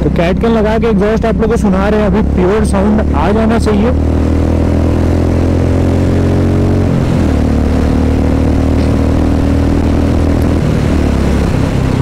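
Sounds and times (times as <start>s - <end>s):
motorcycle engine exhaust note: 0.0s - 12.0s.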